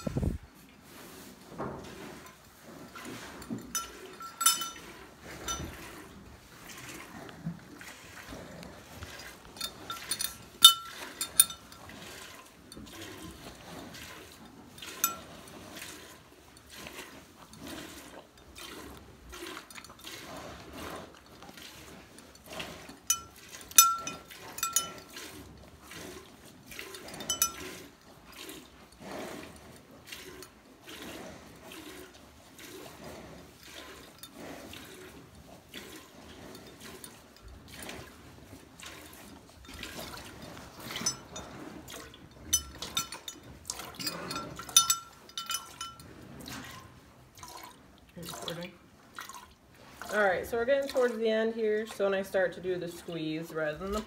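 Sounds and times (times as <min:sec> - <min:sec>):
milk squirting into metal pail: 0:01.9 - 0:29.4, 0:30.0 - 0:32.9.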